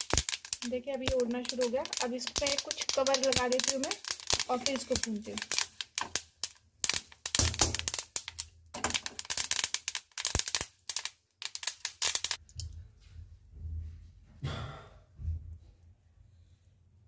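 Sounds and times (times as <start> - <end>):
seeds popping while roasting: 0.0 - 12.7.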